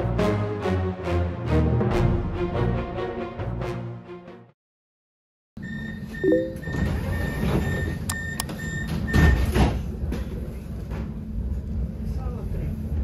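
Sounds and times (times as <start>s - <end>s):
high beep: 5.7s - 6.9s.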